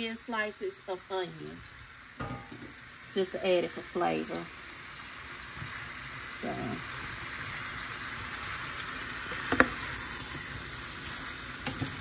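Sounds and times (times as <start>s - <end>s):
vegetables sizzling in a skillet: 0.0s - 12.0s.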